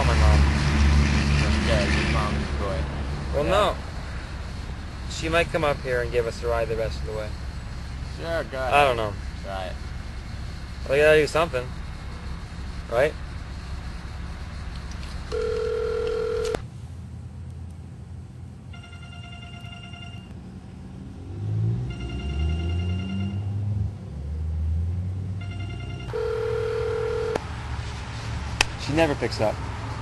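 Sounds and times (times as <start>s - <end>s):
phone beep: 15.3s - 16.6s, 18.8s - 20.3s, 25.4s - 27.4s
phone ringing tones: 15.3s - 16.6s, 18.7s - 20.3s, 21.9s - 23.5s, 25.4s - 27.4s.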